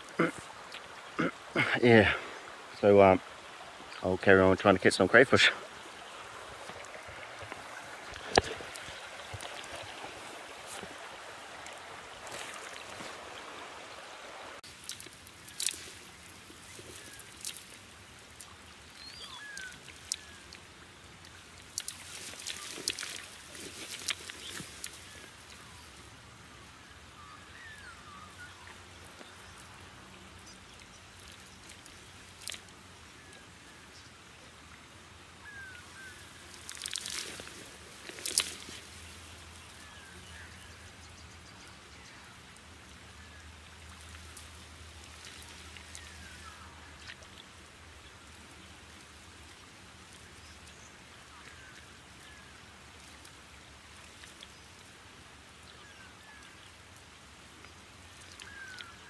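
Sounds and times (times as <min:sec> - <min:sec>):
stream trickling: 0:00.0 - 0:59.0
hands splashing in stream water: 0:06.0 - 0:18.6, 0:21.6 - 0:25.2, 0:36.4 - 0:39.7.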